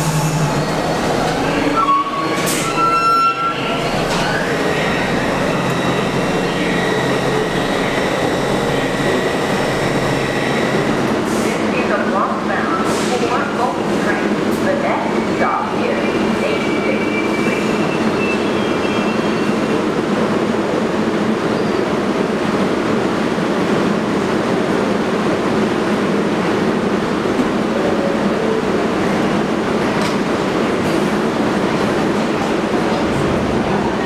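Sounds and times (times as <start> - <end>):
subway train standing at platform: 0.0 - 34.0.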